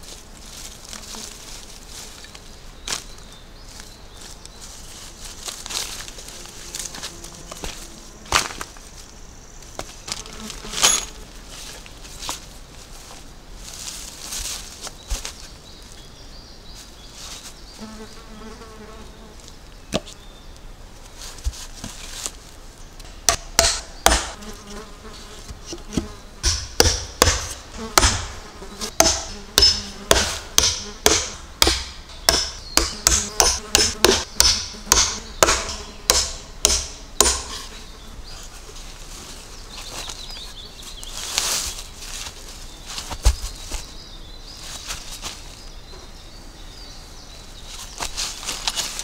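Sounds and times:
fly buzzing: 5.9 - 8.5, 10.0 - 11.4, 17.8 - 19.5, 23.0 - 38.1
hammer striking wooden plank: 23.1 - 24.4, 25.9 - 28.4, 29.0 - 37.6.

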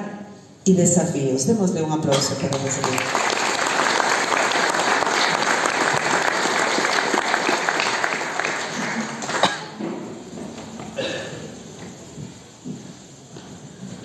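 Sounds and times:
audience applauding: 2.5 - 9.8.

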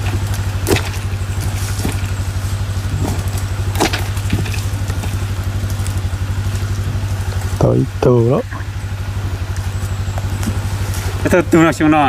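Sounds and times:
low mechanical hum pulsing: 0.0 - 12.0.

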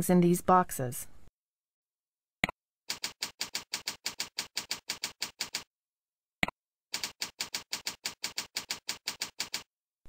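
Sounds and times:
keyboard typing clicks: 7.0 - 9.7.

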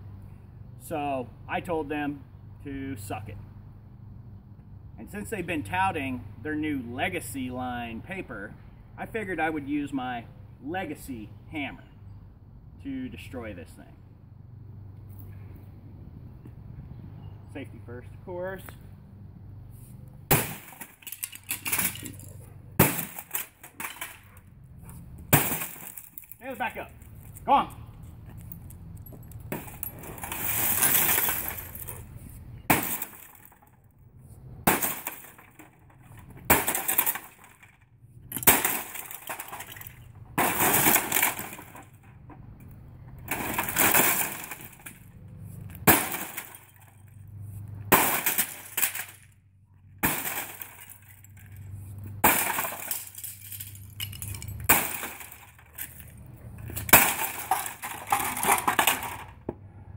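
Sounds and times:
parts clattering onto concrete: 20.3 - 27.4, 28.2 - 33.8, 34.6 - 59.7
plastic and glass cracking: 25.3 - 27.4, 34.7 - 42.0.

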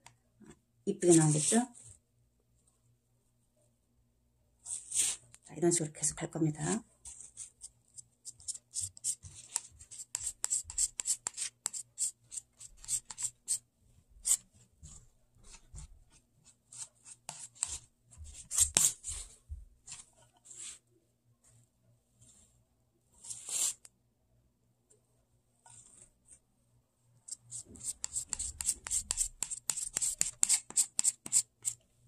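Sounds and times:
metal knife scraping clay: 7.0 - 13.6, 16.7 - 19.2, 25.6 - 26.4, 27.3 - 31.8.

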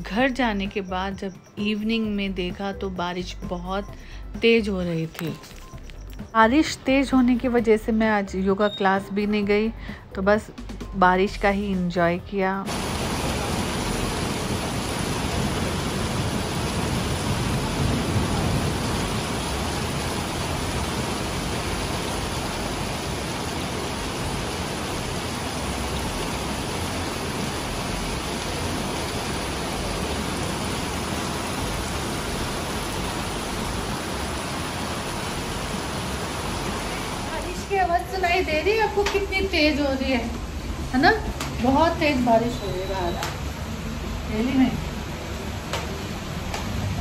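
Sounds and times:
heavy rain pouring: 12.7 - 47.0.

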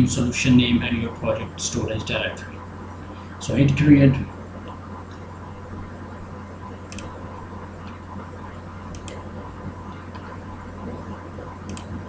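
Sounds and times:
electrical hum and hiss: 0.0 - 12.0
faint clicks: 8.9 - 9.2, 11.3 - 12.0.

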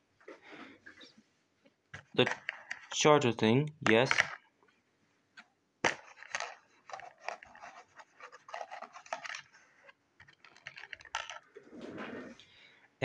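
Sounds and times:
plastic scraping and clicking: 5.9 - 11.5.

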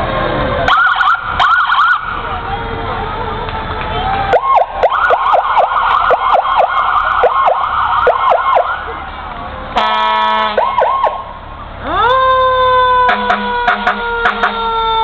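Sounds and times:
siren wailing: 0.7 - 2.1, 4.3 - 8.9, 10.5 - 15.0
horn blast: 9.8 - 10.7, 13.0 - 14.7.

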